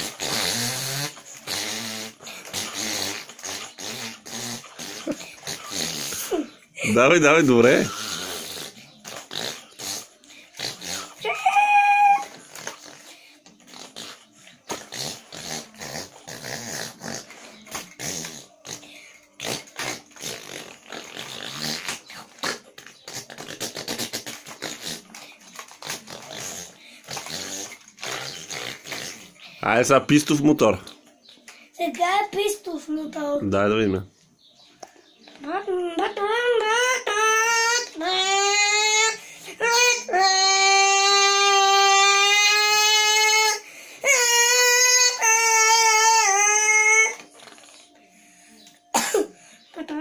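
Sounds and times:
boy imitating motorcycle engine: 0:00.0 - 0:13.0, 0:35.4 - 0:47.2.

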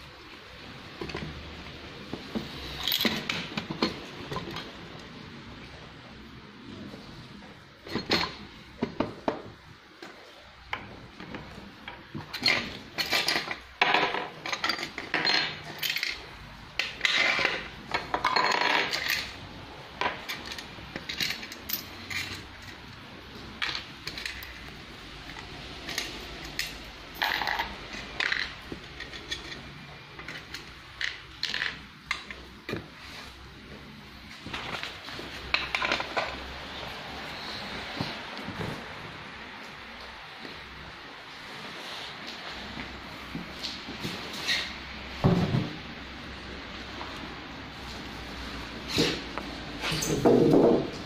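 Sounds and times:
small metal parts clinking: 0:02.6 - 0:04.0, 0:12.3 - 0:16.2, 0:16.8 - 0:19.4, 0:20.0 - 0:22.8, 0:25.8 - 0:32.4.

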